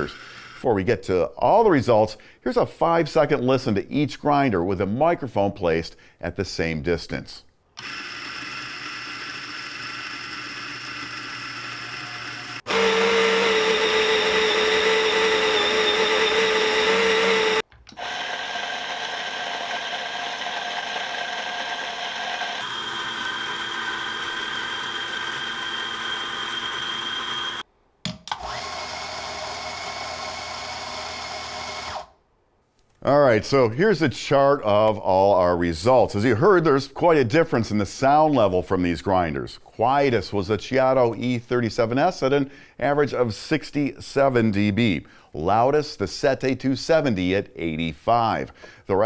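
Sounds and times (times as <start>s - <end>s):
coffee grinder whirring: 0.0s - 0.7s, 7.8s - 27.7s, 28.3s - 32.2s.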